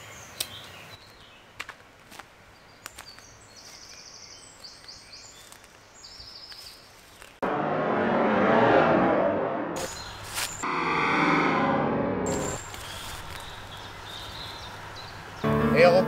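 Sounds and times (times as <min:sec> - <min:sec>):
birds singing trills: 0:00.0 - 0:01.6, 0:02.5 - 0:07.4, 0:12.4 - 0:15.5
twigs snapping underfoot: 0:01.6 - 0:07.4
loud rushing sound effect: 0:07.4 - 0:13.2.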